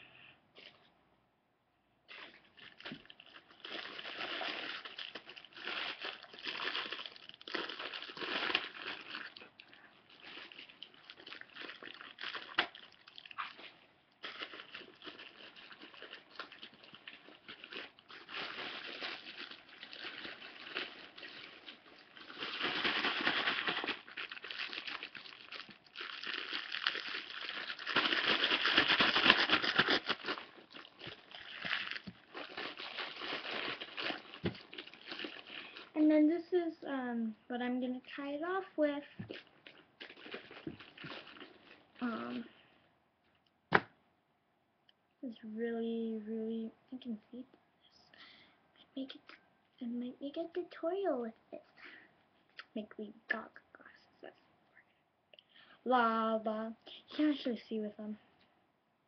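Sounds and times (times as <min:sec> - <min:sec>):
plastic bag crinkling: 0:02.1 - 0:36.5, 0:38.1 - 0:42.6.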